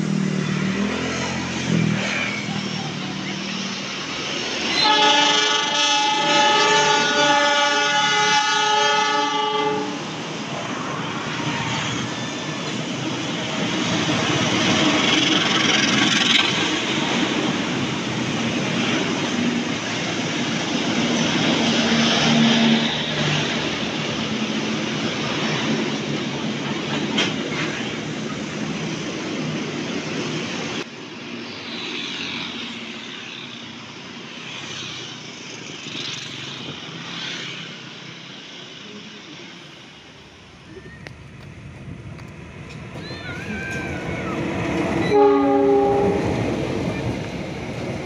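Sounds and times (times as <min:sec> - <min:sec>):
motorbike passing: 0:00.0 - 0:04.8
diesel locomotive engine: 0:00.0 - 0:48.0
road traffic: 0:00.0 - 0:48.0
train coaches rolling past: 0:00.0 - 0:48.0.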